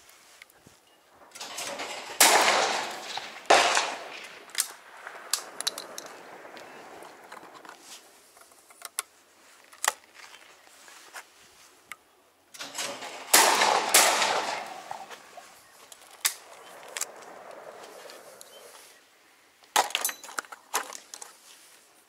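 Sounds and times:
metallic clicks of gun reloading: 1.3s - 6.1s, 12.5s - 15.2s
shotgun shots: 1.3s - 7.5s, 12.6s - 15.5s.

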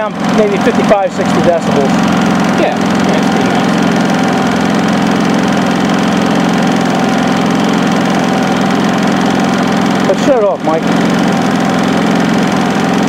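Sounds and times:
generator engine drone: 0.0s - 13.0s.

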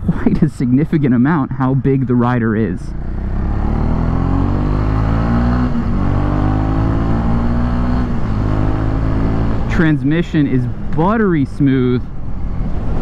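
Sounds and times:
motorcycle engine accelerating: 2.8s - 10.1s.

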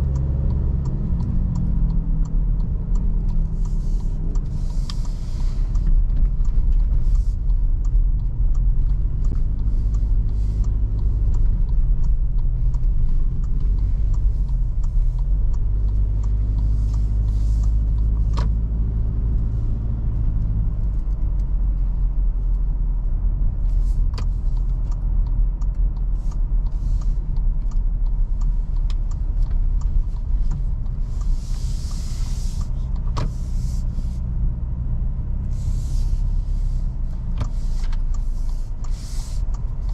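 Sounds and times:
car engine and road rumble: 0.0s - 39.9s
sharp clicks: 36.9s - 39.9s.

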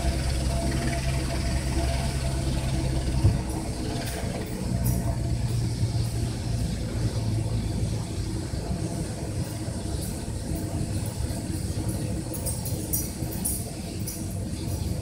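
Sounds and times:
helicopter turbine idling: 0.0s - 15.0s.

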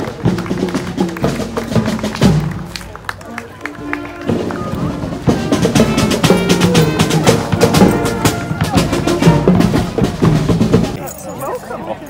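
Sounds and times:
marching band playing: 0.0s - 11.0s
drum hits: 4.4s - 11.0s.

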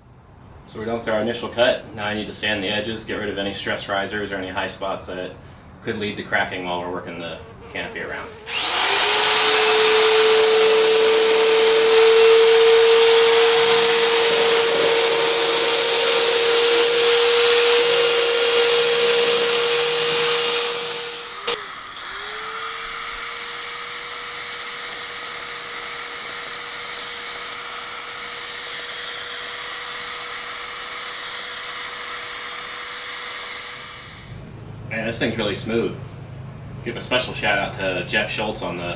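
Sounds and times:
belt sander motor whine: 7.7s - 34.5s.

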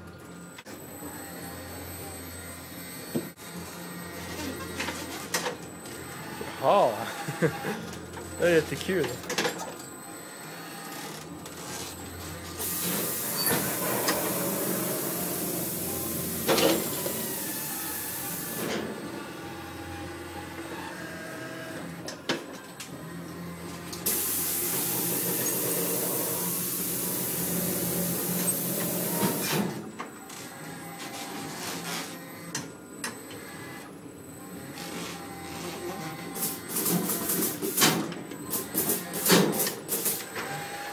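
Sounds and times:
electric motors whirring: 0.0s - 40.9s.

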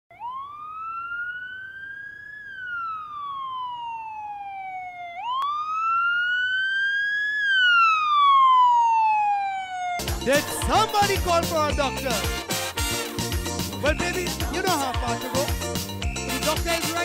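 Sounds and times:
ambulance siren wailing: 0.1s - 12.4s.

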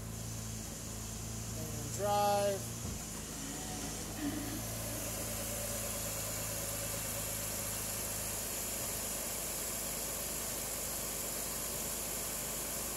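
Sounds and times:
car engine idling: 0.0s - 12.9s.

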